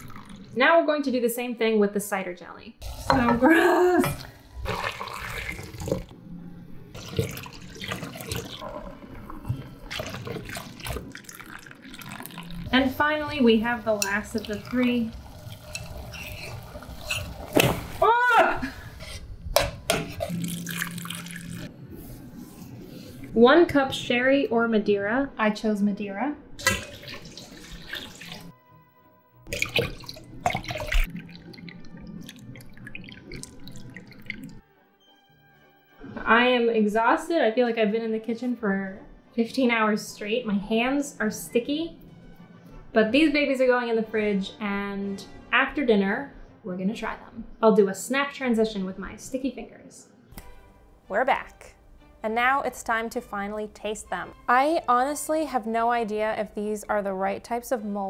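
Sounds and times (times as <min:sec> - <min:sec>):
liquid pouring into cup: 0:00.0 - 0:00.6, 0:04.1 - 0:06.1, 0:07.0 - 0:12.8, 0:14.0 - 0:17.9, 0:20.2 - 0:21.7, 0:26.6 - 0:28.5, 0:29.5 - 0:34.6
light background music: 0:00.0 - 0:58.0.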